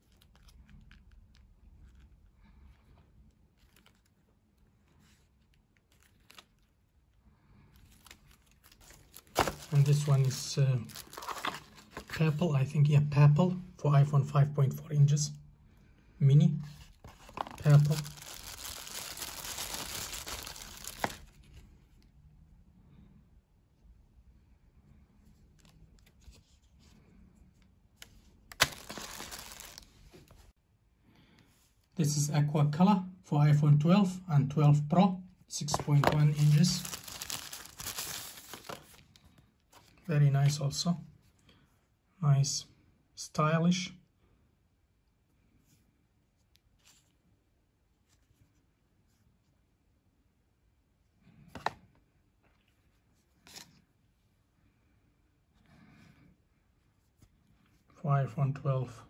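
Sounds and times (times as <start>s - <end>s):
plastic bag crinkling: 7.8s - 12.2s, 17.1s - 21.4s, 28.5s - 30.4s, 35.7s - 39.2s.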